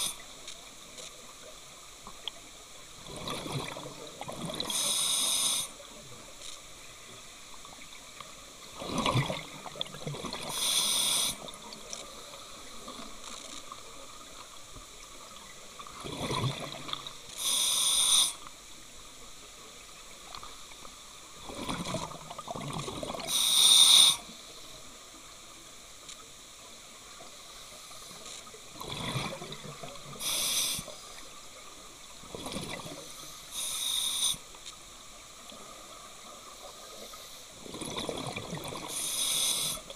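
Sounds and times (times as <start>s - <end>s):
exhaust bubbles rumbling underwater: 3.0s - 4.7s, 8.7s - 10.5s, 15.8s - 17.2s, 21.4s - 23.3s, 37.6s - 39.0s
regulator valve hissing: 4.7s - 5.7s, 10.5s - 11.4s, 17.4s - 18.4s, 30.2s - 31.0s, 33.5s - 34.4s, 38.9s - 39.8s.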